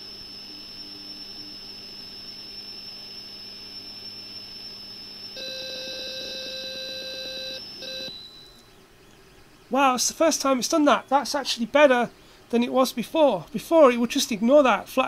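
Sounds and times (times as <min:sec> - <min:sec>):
warbling two-tone data signal: 0:05.4 - 0:08.6.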